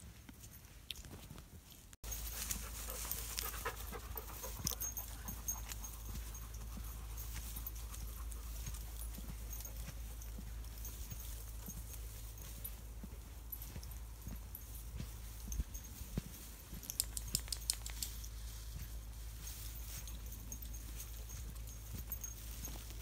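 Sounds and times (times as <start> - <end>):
dogs panting: 2.1 - 15.9.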